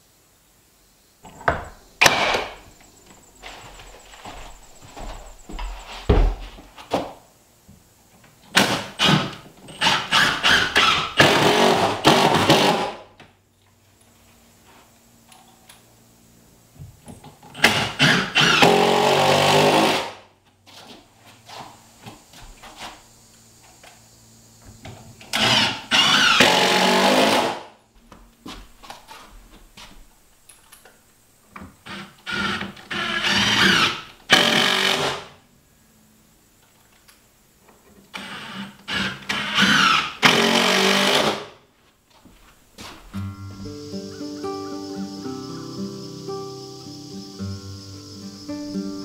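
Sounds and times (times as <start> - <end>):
cordless drill running: 9.8 - 12.9, 25.4 - 27.6, 31.8 - 35.2, 38.2 - 41.4.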